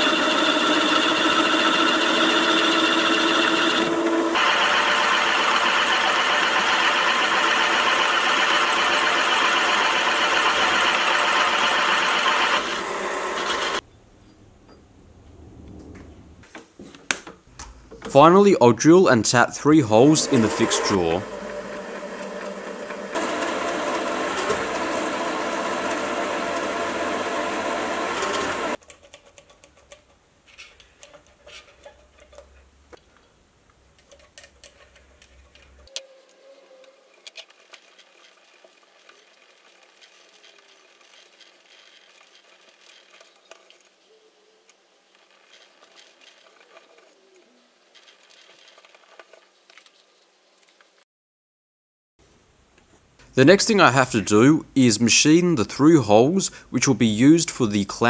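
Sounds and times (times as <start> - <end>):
milling machine drilling steel: 0.0 - 13.8, 19.6 - 28.8
faint clicks and scrapes of tapping: 28.8 - 44.1.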